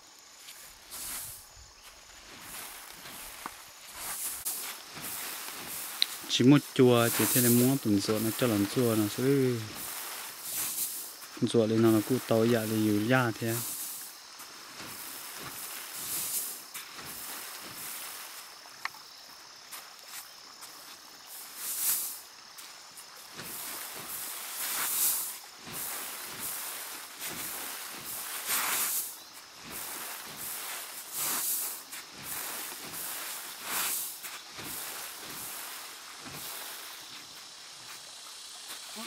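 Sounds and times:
winnowing fan whooshing: 2.2s - 18.4s.

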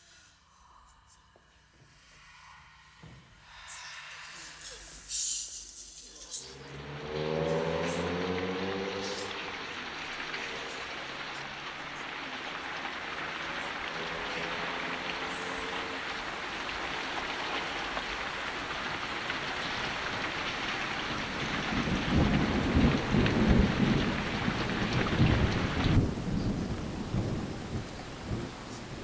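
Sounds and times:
heavy rain: 4.3s - 29.0s
thunder rumbling: 6.8s - 29.0s.

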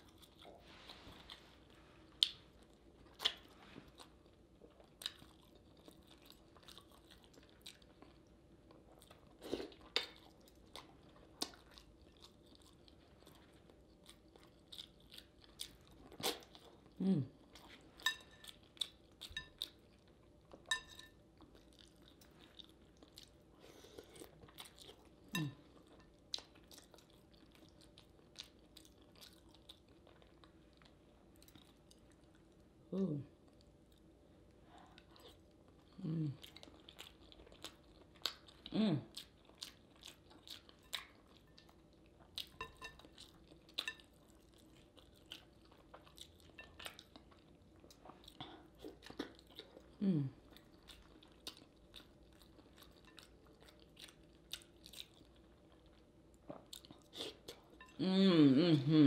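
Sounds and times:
wet chewing and lip smacking: 34.9s - 58.0s.

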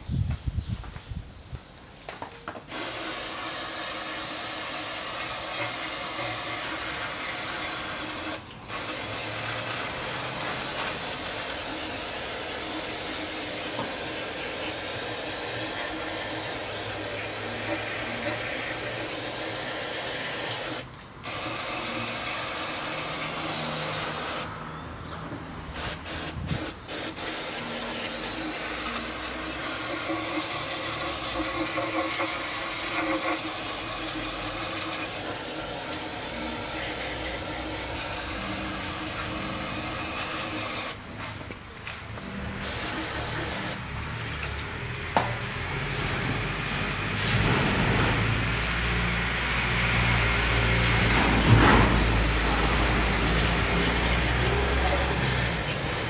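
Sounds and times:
aerosol spray hissing: 2.7s - 24.5s, 25.8s - 30.5s, 42.6s - 43.8s.

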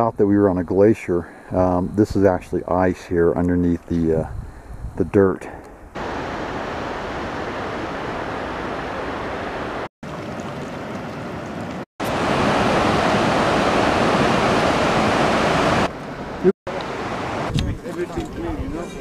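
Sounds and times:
water flowing: 6.0s - 18.5s.

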